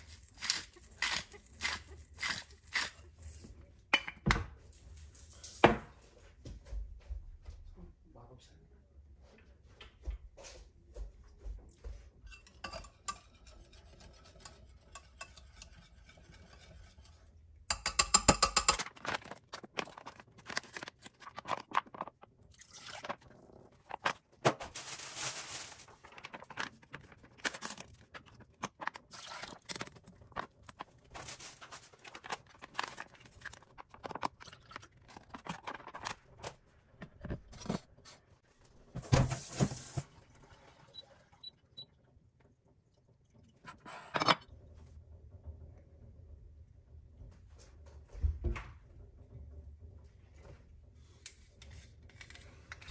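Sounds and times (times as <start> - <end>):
utensils clicking and clattering: 12.3 - 19.8.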